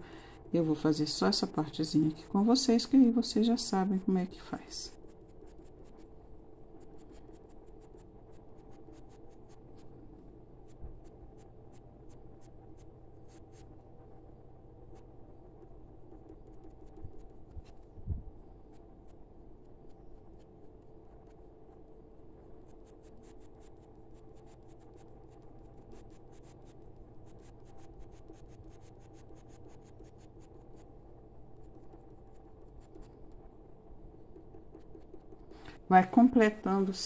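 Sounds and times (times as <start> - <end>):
faint steady hum: 0.0 - 37.0
pencil scratching on paper: 0.1 - 10.0, 10.6 - 13.8, 14.8 - 18.0, 18.6 - 37.0.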